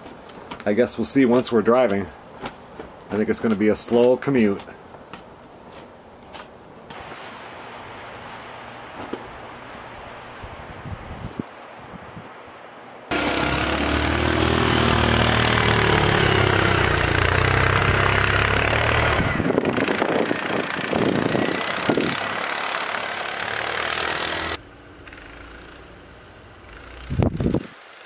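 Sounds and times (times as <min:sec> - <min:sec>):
small vehicle engine running: 0:13.1 - 0:28.0.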